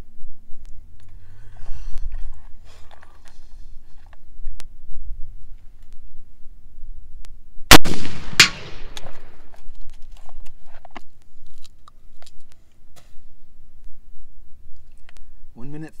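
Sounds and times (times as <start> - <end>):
gunshot echo: 7.7 - 9.4
rifle shot: 7.7 - 9.4
sharp crack: 7.7 - 9.5.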